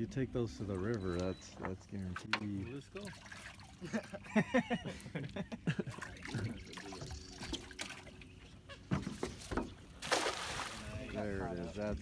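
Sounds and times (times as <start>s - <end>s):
water dripping and trickling: 2.0s - 4.3s, 5.8s - 8.3s.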